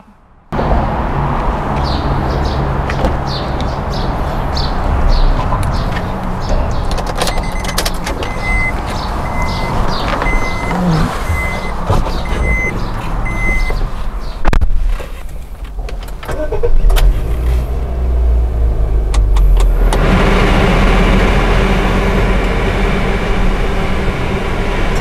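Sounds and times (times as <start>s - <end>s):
low vehicle rumble: 0.0s - 25.0s
car warning chime beeping: 7.3s - 13.8s.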